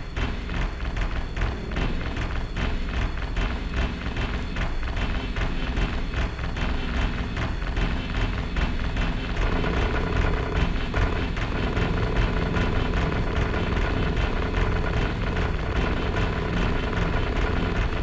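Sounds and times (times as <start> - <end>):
dense low rumble: 0.7 - 18.0
steady mid-pitched tone: 1.4 - 6.0, 9.1 - 18.0.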